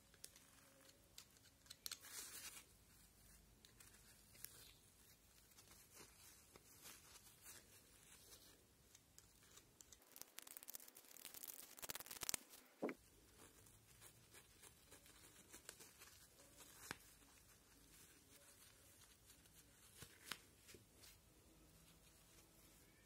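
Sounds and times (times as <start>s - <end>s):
rapid scratching: 10.0s - 13.0s.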